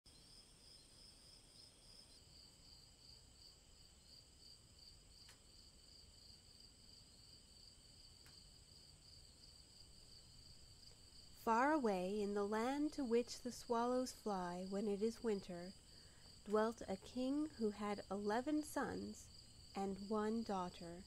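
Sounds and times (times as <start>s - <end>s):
crickets chirping: 0.1s - 21.0s
faint ticks: 5.2s - 5.5s, 8.1s - 8.5s.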